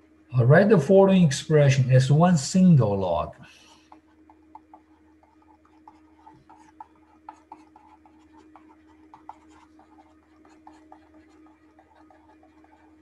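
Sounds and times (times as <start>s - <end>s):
faint steady hum: 0.0s - 13.0s
stylus tapping on screen: 3.8s - 13.0s.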